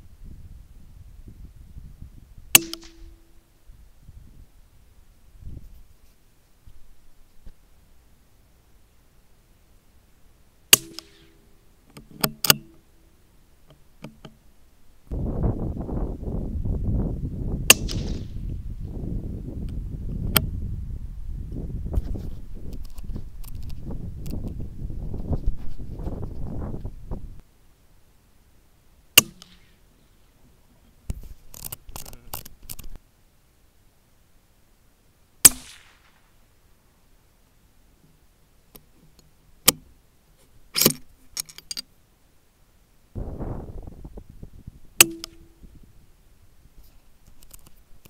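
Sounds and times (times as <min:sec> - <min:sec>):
rifle shot: 0:02.5 - 0:03.1, 0:10.7 - 0:11.4, 0:17.7 - 0:18.4, 0:29.2 - 0:29.8, 0:35.4 - 0:36.3
rifle bolt clicking: 0:12.0 - 0:12.8
steady rough rumble: 0:43.2 - 0:46.1.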